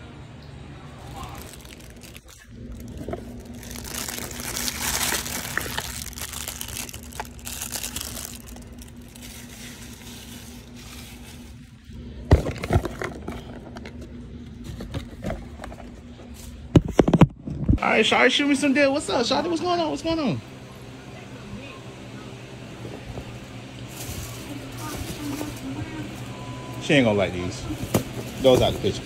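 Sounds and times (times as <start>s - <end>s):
faint steady hum: 0.0s - 29.0s
paper and cardboard rustling: 1.1s - 14.0s, 23.9s - 26.1s, 27.7s - 29.0s.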